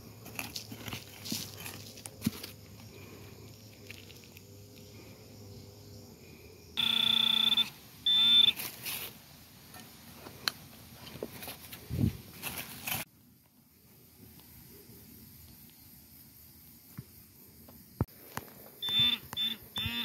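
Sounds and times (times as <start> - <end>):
metal detector buzzing beep: 6.8 - 8.6, 18.8 - 20.0.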